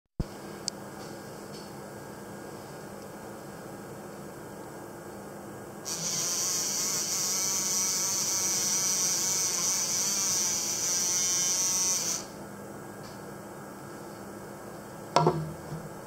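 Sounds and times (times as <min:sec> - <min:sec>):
sonic handpiece buzzing in water: 0:05.9 - 0:12.3.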